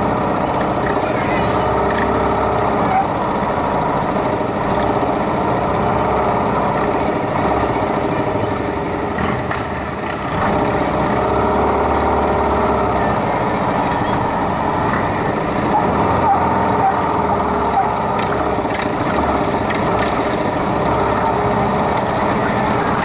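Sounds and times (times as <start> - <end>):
motorcycle engines running: 0.0 - 23.0.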